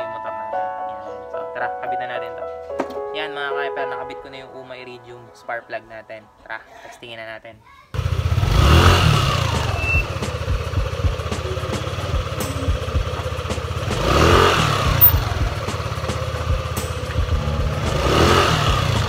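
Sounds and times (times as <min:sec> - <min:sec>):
scooter engine idling: 0:08.0 - 0:19.0
throttle blips: 0:09.3 - 0:15.8.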